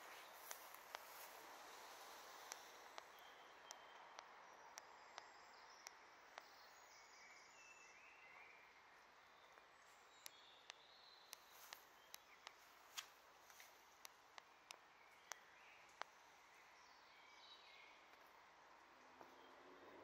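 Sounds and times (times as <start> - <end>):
steady soft hiss: 0.0 - 8.5, 9.1 - 19.2
faint distant bird chirps: 0.0 - 20.0
sharp ticks: 0.4 - 1.3, 2.2 - 6.6, 10.2 - 16.2.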